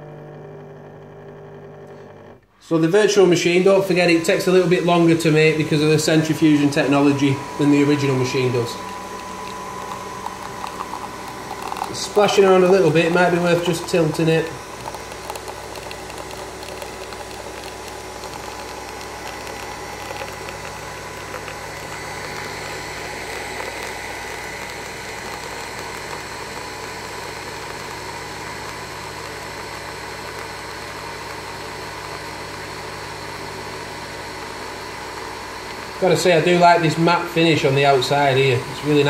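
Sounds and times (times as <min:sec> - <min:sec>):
coffee machine whirring: 0:00.0 - 0:39.0.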